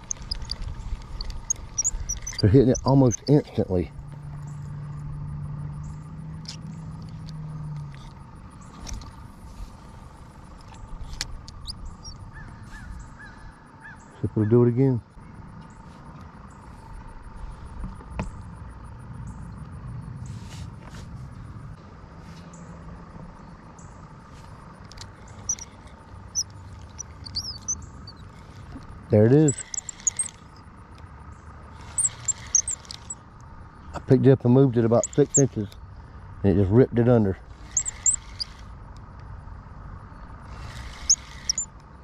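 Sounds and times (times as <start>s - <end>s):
fishing reel clicks: 0.0s - 3.4s, 24.9s - 30.5s, 31.8s - 33.2s, 34.9s - 35.8s, 37.6s - 38.7s, 40.6s - 41.7s
bird chirps: 0.0s - 3.7s, 10.7s - 14.5s, 25.2s - 28.7s, 29.3s - 30.7s, 31.3s - 33.9s, 34.9s - 36.0s, 37.6s - 38.6s, 40.9s - 41.7s
low steady rumble: 0.0s - 42.0s
motor vehicle hum: 0.0s - 42.0s.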